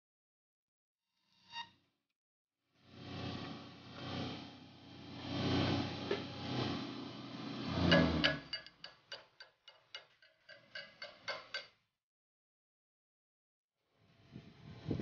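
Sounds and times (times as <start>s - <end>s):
rushing noise: 2.8s - 8.4s
chipping hammer tapping metal: 7.8s - 11.7s.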